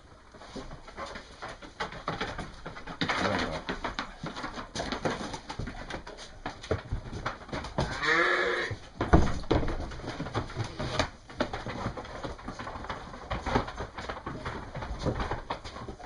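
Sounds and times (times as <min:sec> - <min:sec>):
knocks and shuffling of sheep: 0:00.0 - 0:16.0
sheep bleating: 0:07.9 - 0:08.8.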